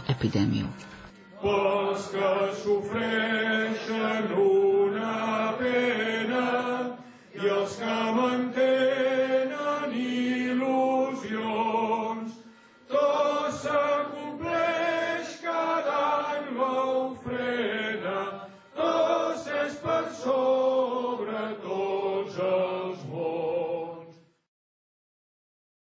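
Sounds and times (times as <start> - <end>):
voices singing a hymn: 1.2 - 24.3.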